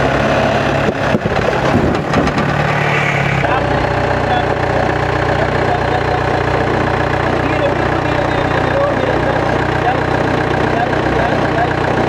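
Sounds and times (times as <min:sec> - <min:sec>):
jeep engine running at low revs: 0:00.0 - 0:12.0.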